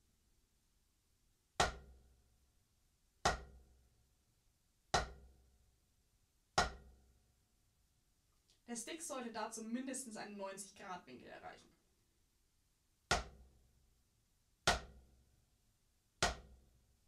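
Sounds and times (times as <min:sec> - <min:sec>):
drumstick hitting practice pad: 0:01.6 - 0:01.9, 0:03.3 - 0:03.6, 0:05.0 - 0:05.3, 0:06.6 - 0:06.9, 0:13.1 - 0:13.4, 0:14.7 - 0:15.0, 0:16.2 - 0:16.5.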